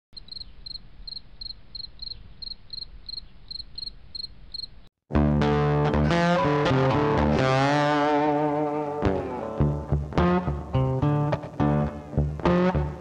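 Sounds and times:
crickets chirping: 0.2 - 4.9
loud distorted guitar music: 5.1 - 13.0.

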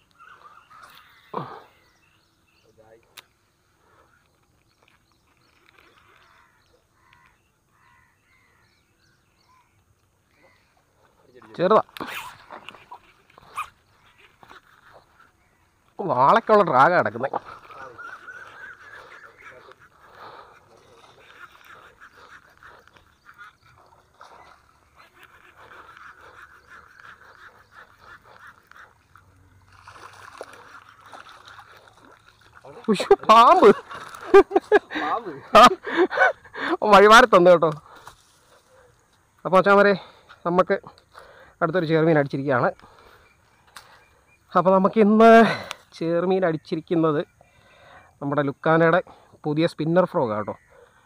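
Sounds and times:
bird calls: 0.0 - 51.0
distant crow cawing: 0.2 - 2.0, 5.9 - 11.0.

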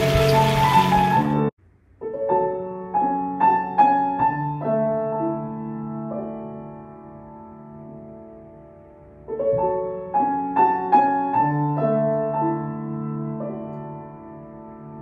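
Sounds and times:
background music: 0.0 - 15.0
piano single notes: 0.0 - 15.0.

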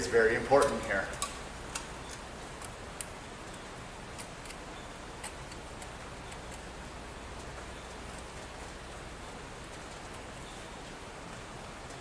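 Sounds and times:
small clicks of wires and screws: 0.6 - 3.2.

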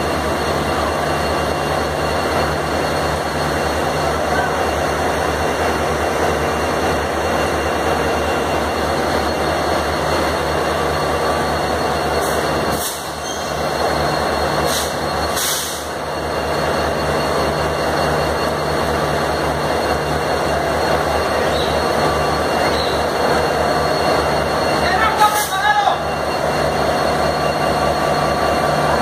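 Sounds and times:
diesel locomotive engine idling: 0.0 - 29.0
sharp air hisses: 12.3 - 13.3, 14.6 - 15.9.

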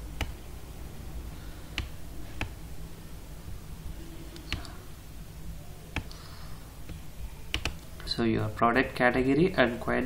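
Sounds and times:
low steady hum: 0.0 - 10.0
computer mouse clicking: 0.2 - 0.4, 1.7 - 2.6, 4.3 - 4.8, 5.9 - 6.2, 6.9 - 7.9.

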